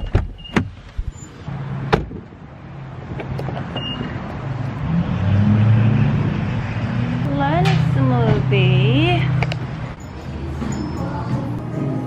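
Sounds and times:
running car hum: 0:00.0 - 0:12.0.

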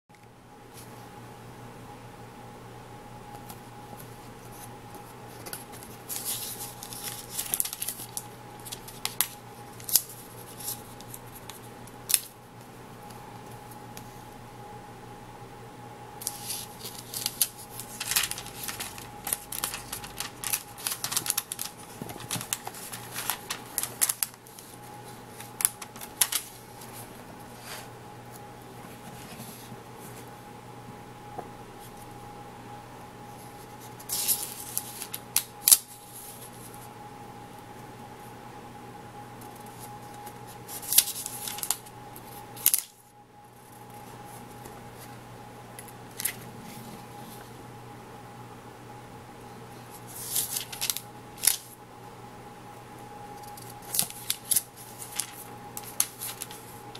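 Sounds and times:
faint hum: 0:00.1 - 0:56.9
book pages rustling: 0:04.5 - 0:12.3, 0:16.2 - 0:30.3, 0:39.4 - 0:42.9, 0:50.0 - 0:51.7, 0:53.5 - 0:56.9.

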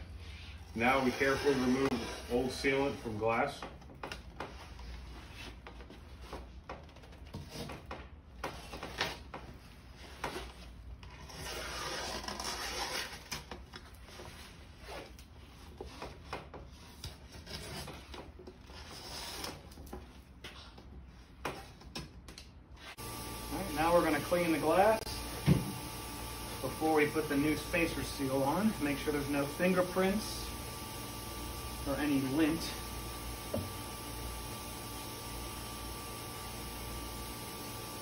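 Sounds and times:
scraper blade scraping glass: 0:11.2 - 0:13.5.

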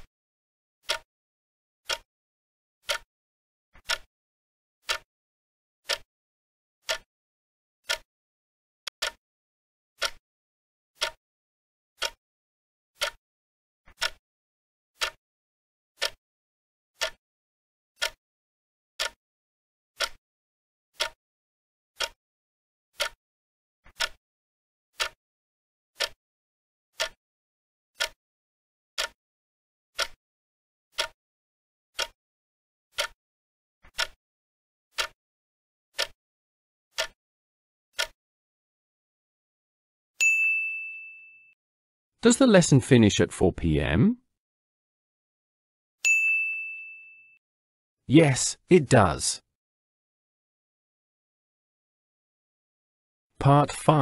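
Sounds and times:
clock-like timer ticks: 0:00.8 - 0:01.1, 0:01.8 - 0:02.1, 0:02.8 - 0:03.1, 0:03.8 - 0:04.1, 0:04.8 - 0:05.1, 0:05.8 - 0:06.1, 0:06.8 - 0:07.1, 0:07.8 - 0:08.1, 0:08.9 - 0:09.2, 0:10.0 - 0:10.2, 0:11.0 - 0:11.2, 0:12.0 - 0:12.2, 0:13.0 - 0:13.2, 0:13.9 - 0:14.2, 0:15.0 - 0:15.2, 0:16.0 - 0:16.2, 0:17.0 - 0:17.2, 0:18.0 - 0:18.2, 0:19.0 - 0:19.2, 0:20.0 - 0:20.2, 0:21.0 - 0:21.2, 0:22.0 - 0:22.2, 0:23.0 - 0:23.2, 0:23.9 - 0:24.2, 0:25.0 - 0:25.2, 0:26.0 - 0:26.2, 0:27.0 - 0:27.2, 0:28.0 - 0:28.2, 0:29.0 - 0:29.2, 0:30.0 - 0:30.2, 0:31.0 - 0:31.2, 0:32.0 - 0:32.2, 0:32.9 - 0:33.2, 0:33.9 - 0:34.2, 0:34.9 - 0:35.2, 0:36.0 - 0:36.2, 0:36.9 - 0:37.2, 0:38.0 - 0:38.2.

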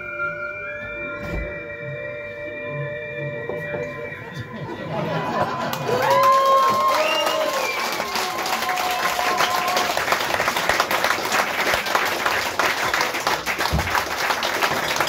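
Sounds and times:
audience applauding: 0:04.9 - 0:15.0.

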